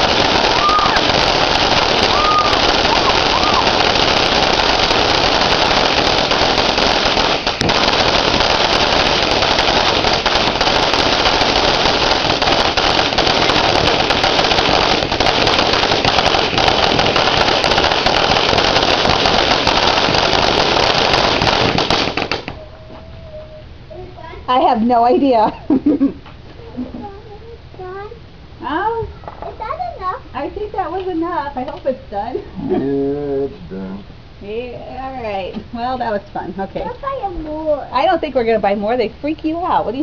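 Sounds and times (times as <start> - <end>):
firework crackles: 0.0 - 22.6, 34.4 - 40.0
firework fountain hissing: 0.0 - 22.6, 34.4 - 40.0.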